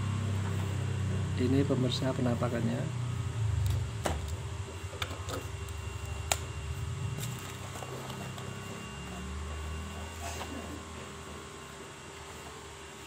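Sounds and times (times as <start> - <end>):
low steady rumble: 0.0 - 8.4.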